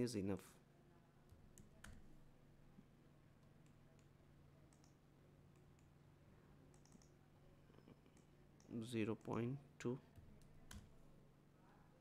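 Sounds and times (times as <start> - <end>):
faint low hum: 0.0 - 12.0
computer mouse and keyboard clicks: 4.7 - 5.9, 6.7 - 7.2.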